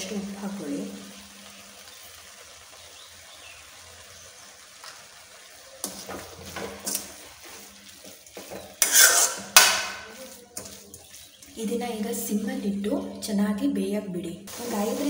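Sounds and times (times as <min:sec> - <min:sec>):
faint sizzle of frying: 0:00.0 - 0:13.7, 0:14.5 - 0:15.0
metal spoon scraping pan: 0:05.8 - 0:11.3.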